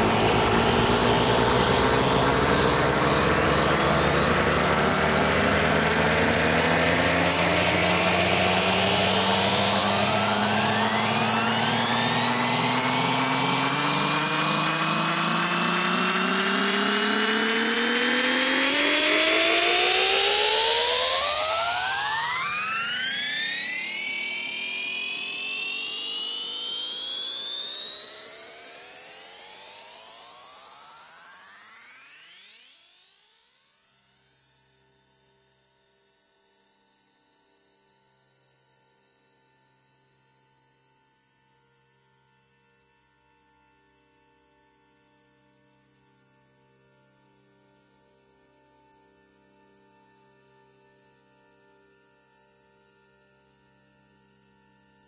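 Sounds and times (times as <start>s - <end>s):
low rumble: 0.0s - 17.6s
rising electronic tones: 0.0s - 29.9s.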